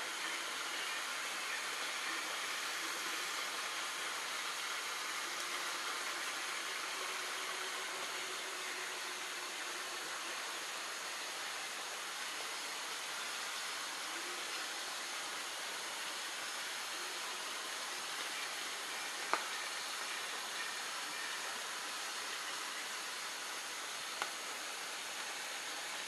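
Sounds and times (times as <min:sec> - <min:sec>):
rainforest ambience hiss: 0:00.0 - 0:26.0.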